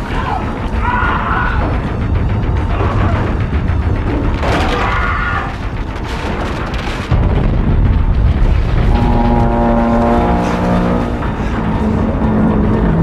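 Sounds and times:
deep low rumble: 0:01.5 - 0:13.0
held music notes: 0:08.8 - 0:13.0.

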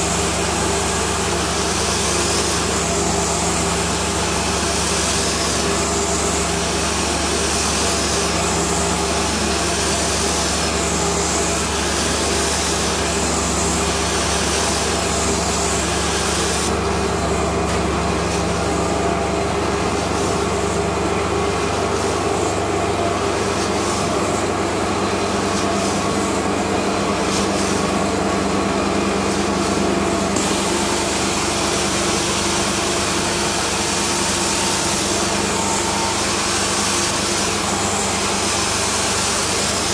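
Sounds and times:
carpet cleaning machine humming: 0:00.0 - 0:39.9
rushing suction and spray: 0:29.2 - 0:39.9.

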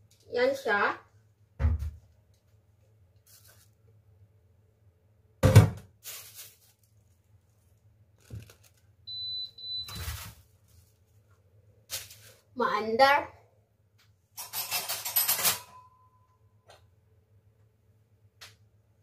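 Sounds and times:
electronic appliance beep: 0:09.1 - 0:10.2.

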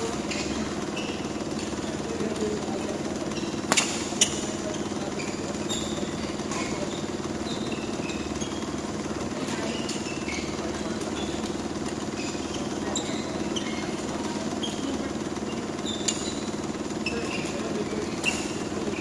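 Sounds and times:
rackets hitting shuttlecock: 0:00.0 - 0:08.8, 0:16.0 - 0:19.0
pulsing mechanical hum: 0:00.0 - 0:19.0.

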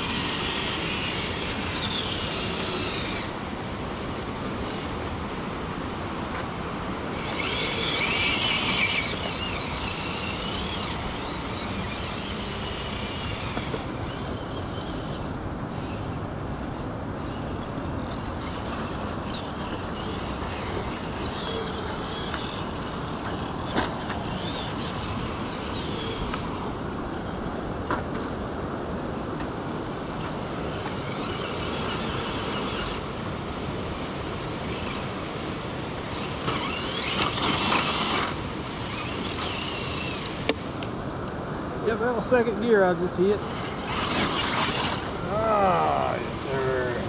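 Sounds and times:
electric motor and gears whining: 0:00.0 - 0:28.4, 0:29.0 - 0:41.0, 0:41.7 - 0:47.0
river rushing: 0:00.0 - 0:47.0.

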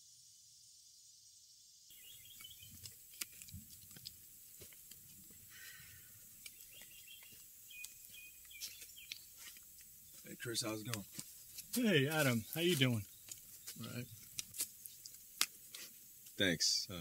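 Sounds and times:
footsteps through undergrowth: 0:01.9 - 0:16.3
leaves crackling: 0:01.9 - 0:16.6
small birds chirping: 0:01.9 - 0:17.0
twig snaps: 0:06.4 - 0:09.9, 0:10.8 - 0:11.8, 0:14.2 - 0:16.4.

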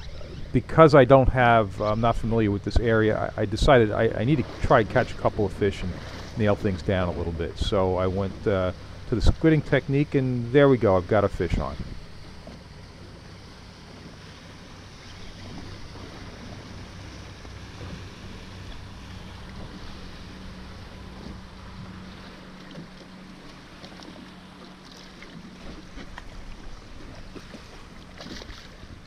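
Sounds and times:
wind on microphone: 0:00.0 - 0:12.5
boat engine humming: 0:00.0 - 0:29.0
water around boat: 0:00.0 - 0:29.0.

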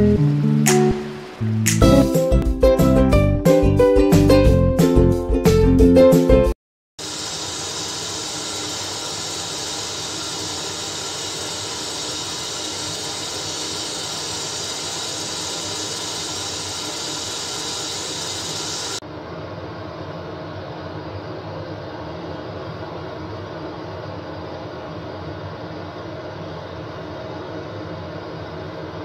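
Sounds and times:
pot boiling with bubbling hiss: 0:07.0 - 0:19.0.

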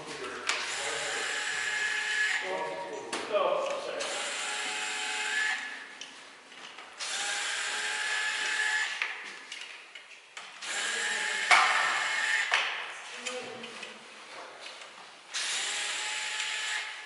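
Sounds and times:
cordless drill running: 0:00.6 - 0:02.4, 0:04.0 - 0:05.8, 0:07.0 - 0:09.0, 0:10.6 - 0:12.6, 0:15.3 - 0:17.0.

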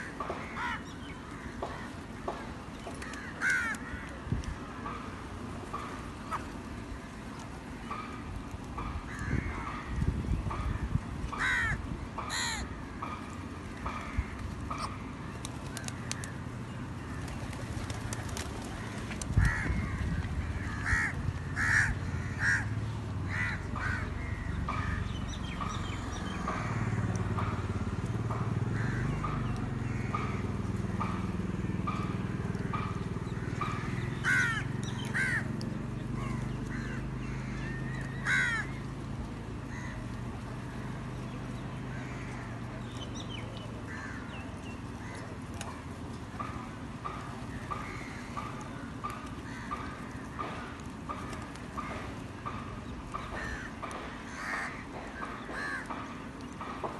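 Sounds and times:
crows cawing: 0:00.0 - 0:02.4, 0:03.0 - 0:04.2, 0:08.8 - 0:15.0, 0:18.8 - 0:25.8, 0:26.4 - 0:27.7, 0:28.6 - 0:35.5, 0:36.2 - 0:38.9, 0:39.7 - 0:40.1, 0:41.9 - 0:42.6, 0:43.9 - 0:44.4, 0:46.4 - 0:52.6, 0:53.2 - 0:56.8
low engine-like hum: 0:00.0 - 0:56.9.

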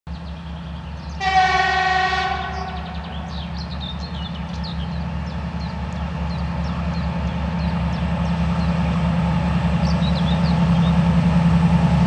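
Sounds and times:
diesel locomotive engine rumble: 0:00.1 - 0:12.0
locomotive horn blast: 0:01.2 - 0:03.3.

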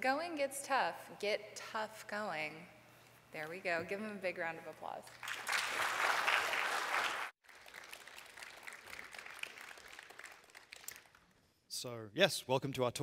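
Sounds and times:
audience applauding: 0:05.2 - 0:11.2.

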